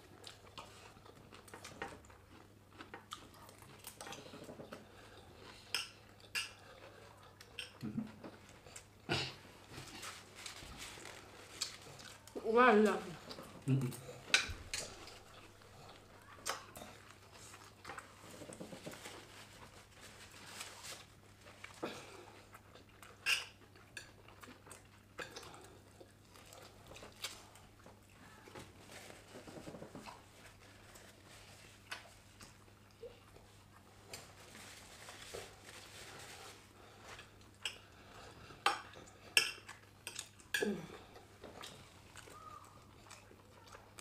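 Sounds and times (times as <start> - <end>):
people chewing: 0.0 - 44.0.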